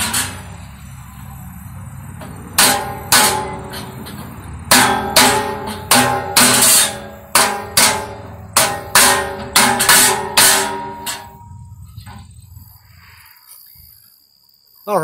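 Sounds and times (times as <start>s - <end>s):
steel drum ringing: 2.1s - 12.6s.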